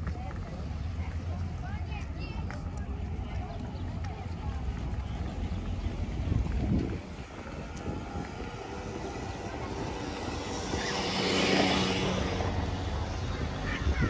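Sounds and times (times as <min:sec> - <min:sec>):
motor vehicle passing: 0:00.0 - 0:14.0
wind on microphone: 0:03.4 - 0:14.0.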